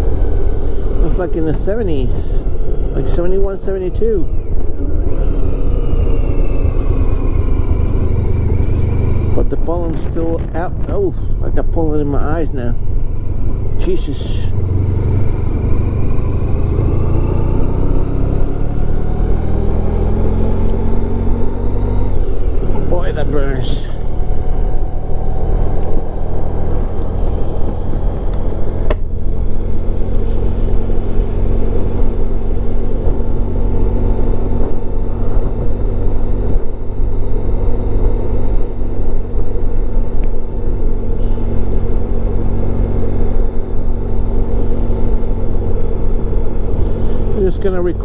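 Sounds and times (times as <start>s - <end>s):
wind rumble on microphone: 0.0s - 13.8s, 23.9s - 40.5s
motorcycle engine cruising: 0.0s - 48.0s.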